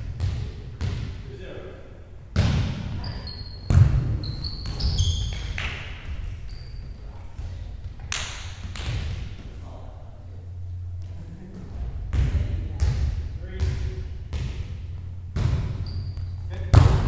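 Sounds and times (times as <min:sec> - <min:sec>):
sneaker squeaks on gym floor: 0:02.8 - 0:07.2, 0:15.6 - 0:16.8.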